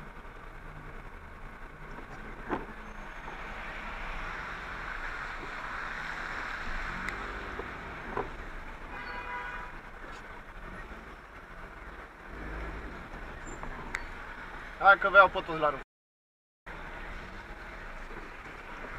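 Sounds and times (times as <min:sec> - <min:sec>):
tyres hissing on wet asphalt: 0:02.8 - 0:11.7.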